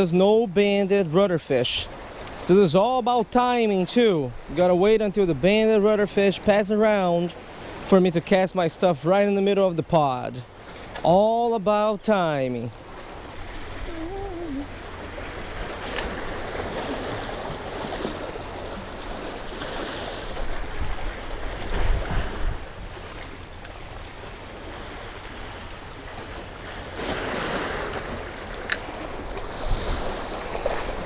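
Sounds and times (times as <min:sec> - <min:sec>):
wind rumbling on microphone: 0:13.2 - 0:31.0
sea water sloshing against rocks: 0:14.7 - 0:31.0.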